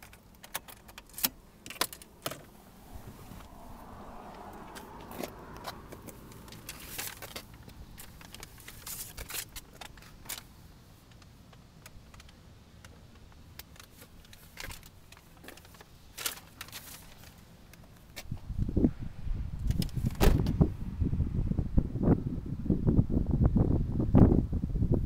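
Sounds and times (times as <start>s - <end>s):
camera handling clicks and rustles: 4.4s - 18.4s.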